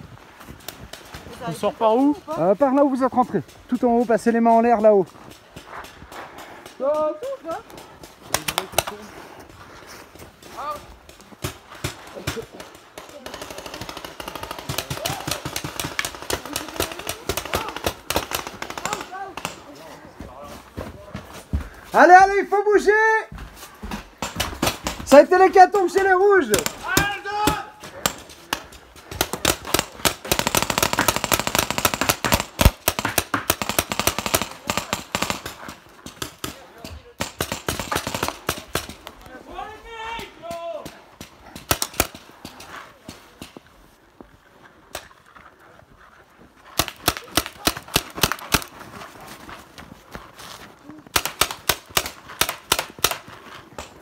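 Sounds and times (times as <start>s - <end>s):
paintball markers firing: 11.4s - 19.8s, 24.2s - 39.1s, 40.8s - 43.7s, 46.8s - 48.8s, 51.1s - 54.0s.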